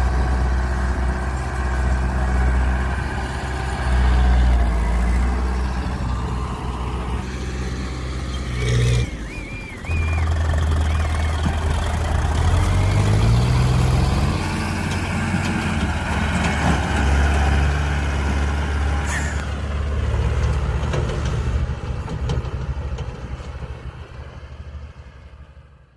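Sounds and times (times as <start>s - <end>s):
tractor diesel engines under load: 0.0s - 25.9s.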